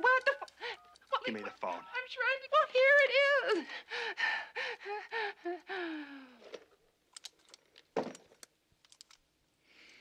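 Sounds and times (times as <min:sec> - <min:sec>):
woman gasping and whimpering: 0:03.5 - 0:06.6.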